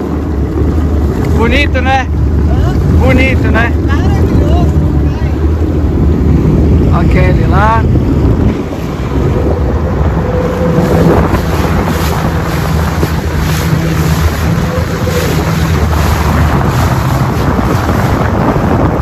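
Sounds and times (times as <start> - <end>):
jet ski engine running: 0.0 - 19.0
wind buffeting microphone: 0.0 - 19.0
water sloshing: 7.8 - 19.0.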